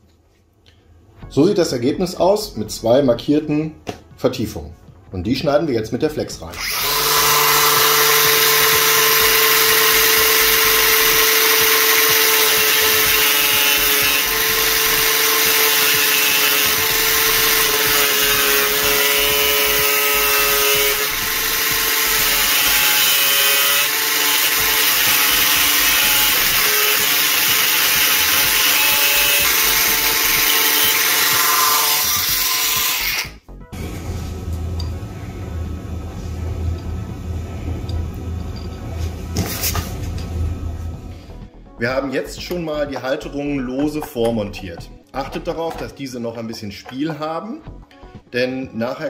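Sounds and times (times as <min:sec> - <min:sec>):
angle grinder cutting metal: 0:06.5 - 0:33.4.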